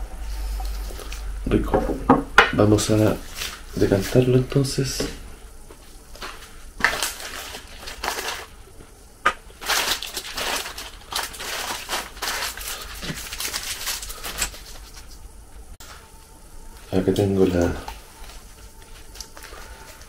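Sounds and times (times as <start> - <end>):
packaging rustling and crinkling: 5.9 - 8.9, 9.5 - 15.2, 17.4 - 20.0.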